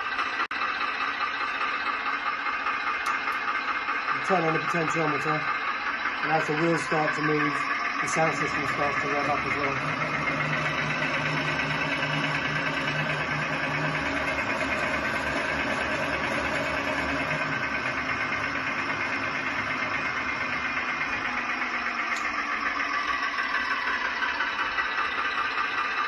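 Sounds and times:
simulated diesel engine from speaker: 0.0 - 26.0.

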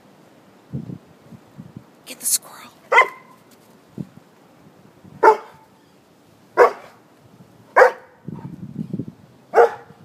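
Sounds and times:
large dog barking: 2.9 - 3.4, 5.2 - 5.7, 6.6 - 7.0, 7.7 - 8.5, 9.5 - 10.0.

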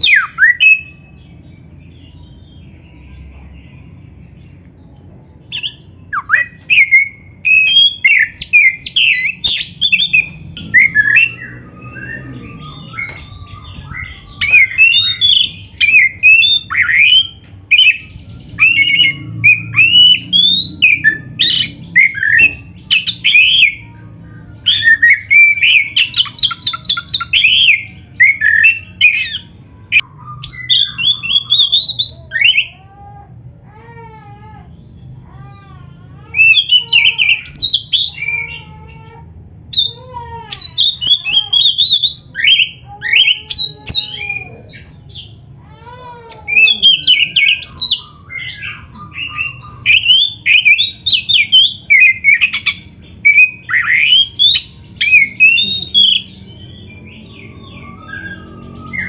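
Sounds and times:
magpie-robin singing: 0.0 - 59.0.

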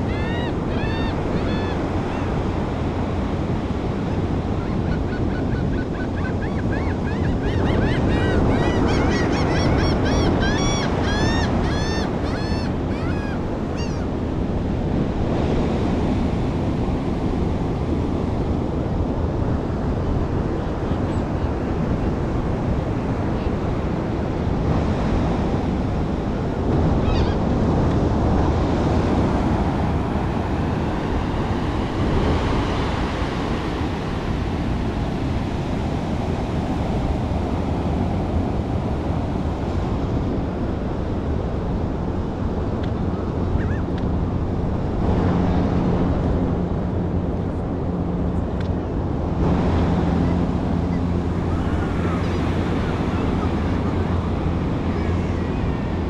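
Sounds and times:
gulls calling: 0.0 - 17.0, 24.5 - 39.2, 43.0 - 46.2, 49.3 - 56.0
surf: 0.0 - 56.0
wind buffeting microphone: 0.0 - 56.0.

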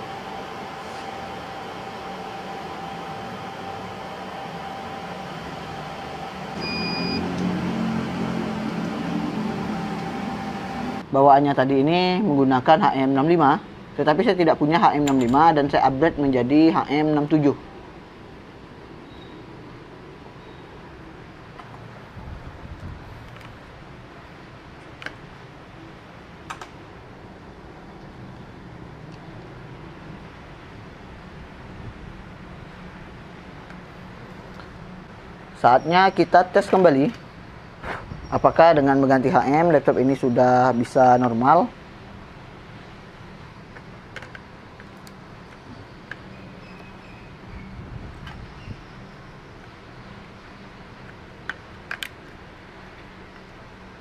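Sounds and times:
constant whine: 0.0 - 11.1
low hum: 0.0 - 11.1
short beep: 6.6 - 7.3.

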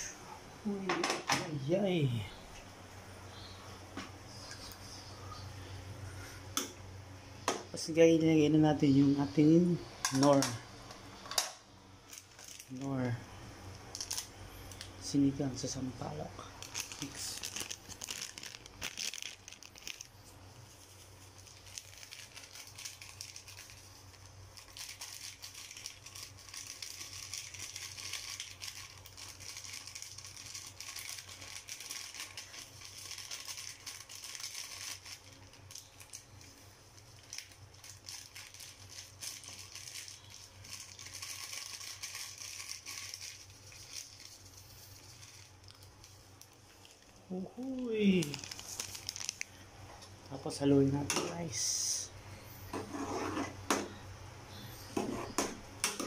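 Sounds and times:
faint steady hiss: 0.0 - 52.9
plastic sachet crinkling: 12.0 - 13.2, 13.8 - 49.7.

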